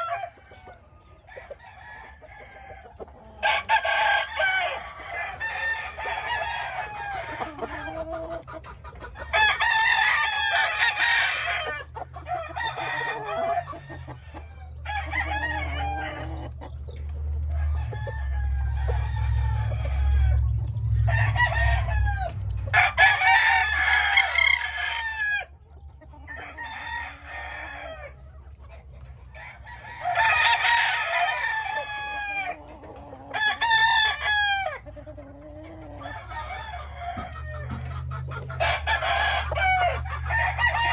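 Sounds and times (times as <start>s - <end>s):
roosters crowing: 0.0s - 40.9s
low rumble: 16.8s - 22.8s.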